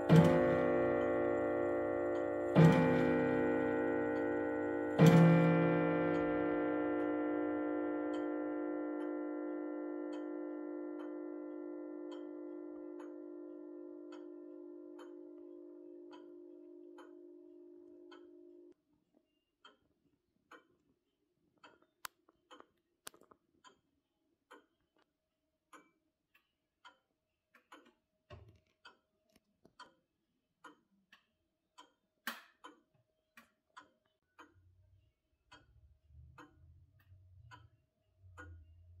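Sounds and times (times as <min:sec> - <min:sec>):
grandfather clock ticking: 0:00.0 - 0:18.3.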